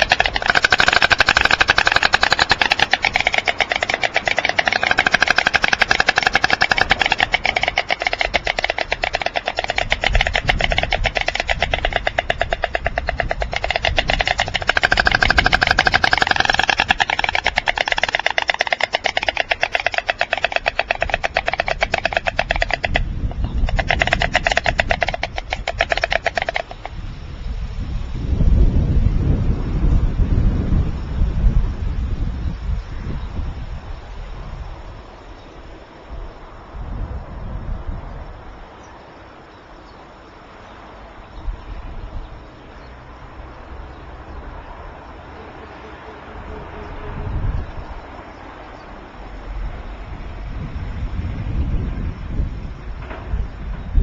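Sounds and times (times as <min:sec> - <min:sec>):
storks clattering bills: 0:00.0 - 0:26.9.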